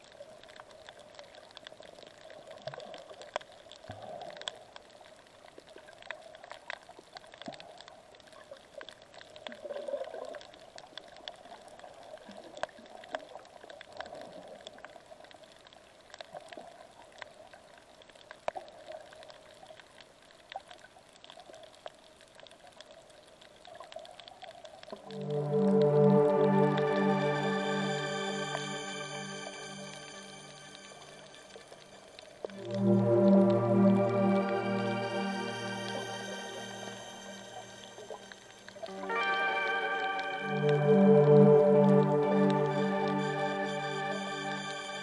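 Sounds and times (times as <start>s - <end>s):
water bubbling underwater: 29.4s - 39.3s.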